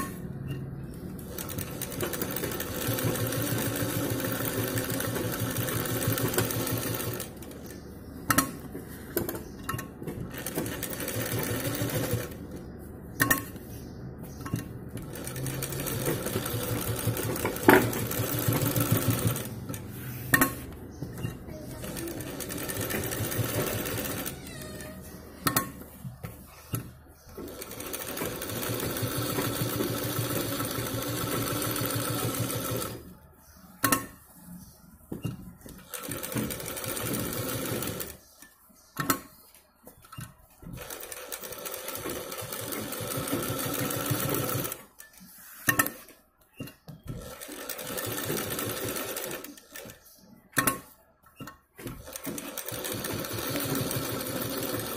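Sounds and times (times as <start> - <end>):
sewing machine stitching: 1.2 - 7.6, 10.0 - 12.4, 14.6 - 19.9, 21.2 - 24.9, 27.4 - 33.0, 35.7 - 38.2, 40.7 - 46.0, 47.1 - 50.1, 50.7 - 54.9.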